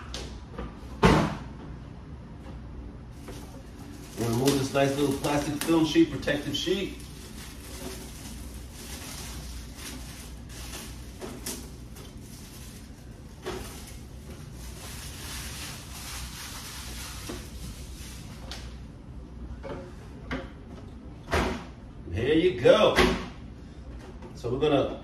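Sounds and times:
plastic bag crinkling: 3.2s - 18.4s.

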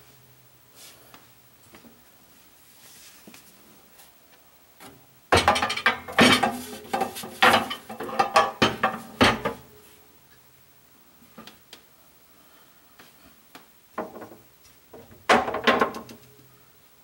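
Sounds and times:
cutting board clattering in rack: 5.4s - 9.6s.

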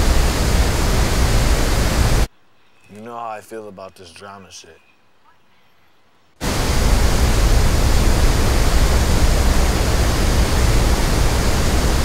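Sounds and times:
heavy low rumble: 0.0s - 2.3s, 6.4s - 12.0s
waterfall rushing: 0.0s - 2.3s, 6.4s - 12.0s.

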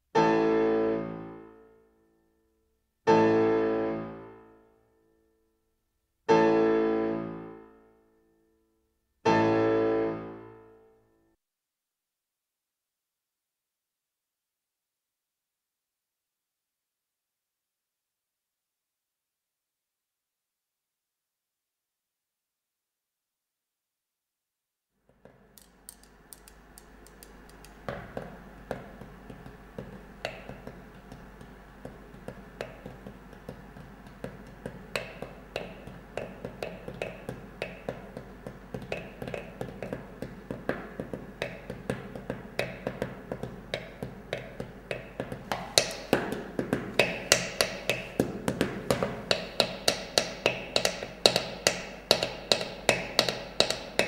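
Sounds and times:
sticks tapping on metal tin: 25.5s - 48.6s, 49.2s - 54.0s.

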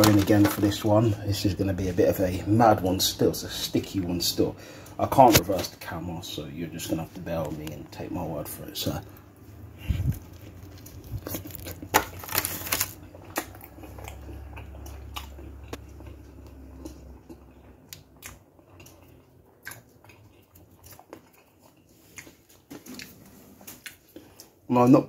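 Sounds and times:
person chewing: 9.1s - 24.6s.

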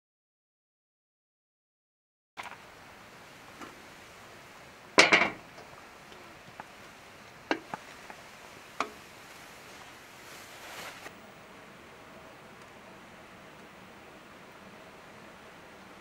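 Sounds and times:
faint steady hiss: 2.4s - 16.0s
cookware and utensils clinking: 5.0s - 5.4s.

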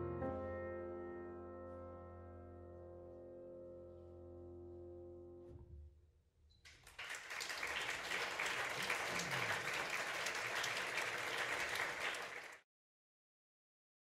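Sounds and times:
audience applauding: 6.7s - 12.6s.

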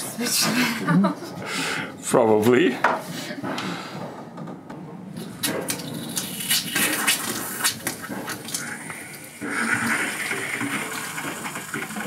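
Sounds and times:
faucet water running into sink: 5.7s - 12.0s.

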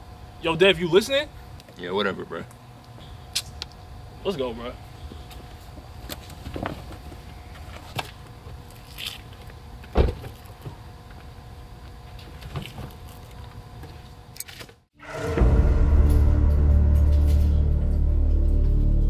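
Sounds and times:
steady low hum: 0.0s - 19.0s
loud music: 15.0s - 19.0s.

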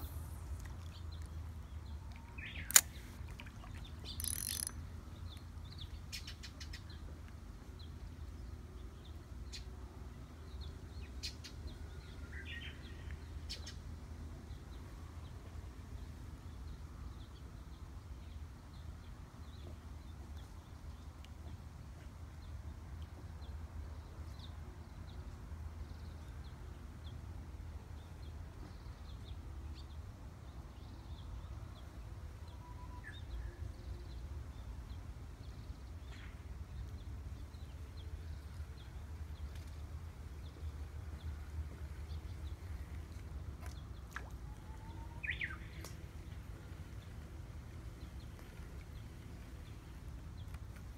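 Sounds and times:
sharp clicks: 2.3s - 3.1s, 4.1s - 4.8s
bird chirps: 4.0s - 4.8s.

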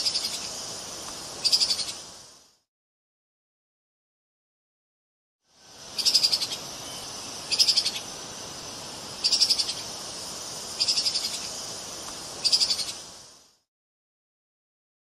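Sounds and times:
steady hiss: 0.0s - 2.7s, 5.4s - 13.7s.

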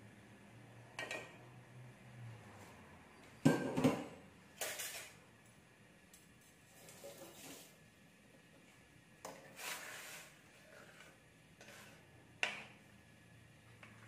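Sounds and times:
metal utensil scraping wok: 4.6s - 5.2s, 9.5s - 12.1s.

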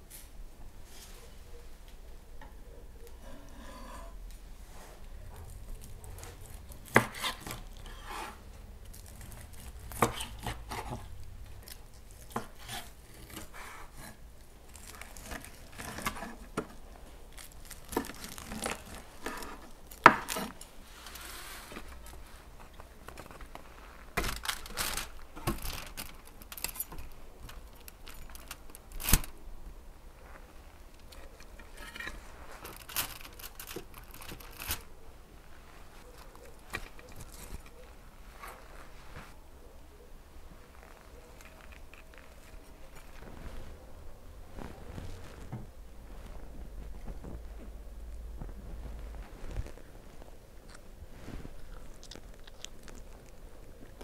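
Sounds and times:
knife and spatula scraping: 3.2s - 11.1s, 11.7s - 16.8s, 17.4s - 22.5s, 31.2s - 34.9s
metal utensils scraping on foil: 3.2s - 23.4s, 24.0s - 29.3s, 31.0s - 34.9s.

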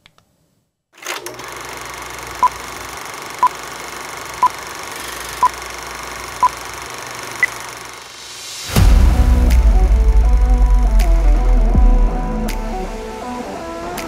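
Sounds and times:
steady hiss: 6.8s - 11.6s.

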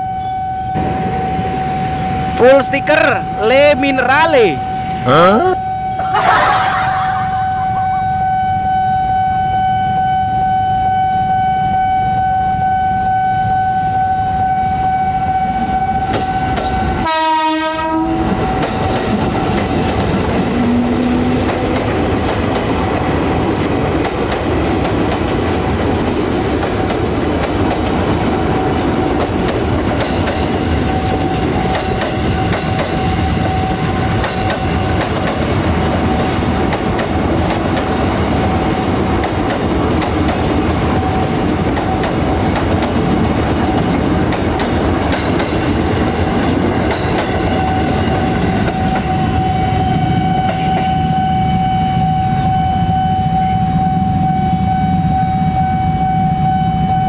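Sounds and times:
steady high tone: 0.1s - 10.4s
train wheels clattering over rail joints: 26.6s - 38.2s, 41.7s - 49.2s.

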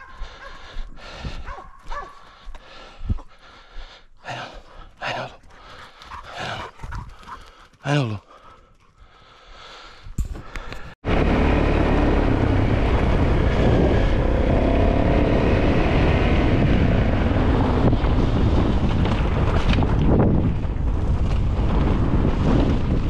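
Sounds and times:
wind buffeting microphone: 0.0s - 1.6s, 12.1s - 23.0s.

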